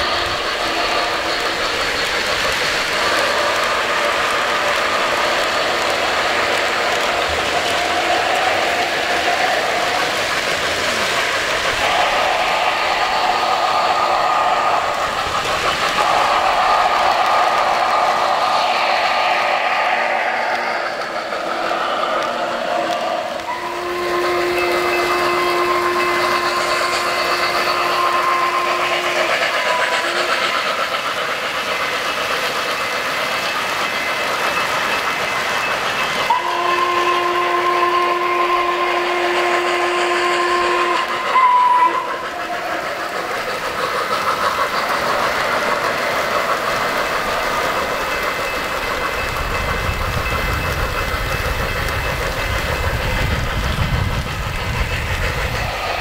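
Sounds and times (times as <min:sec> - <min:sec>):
model train running on track: 0:00.0 - 0:56.0
model train whistle-horn blasts: 0:23.4 - 0:30.5, 0:36.3 - 0:42.3.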